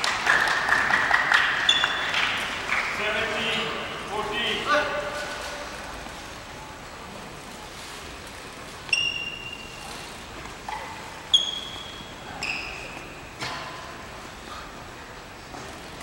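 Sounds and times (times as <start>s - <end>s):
shoes squeaking on wooden floor: 8.8s - 9.9s, 10.7s - 13.2s.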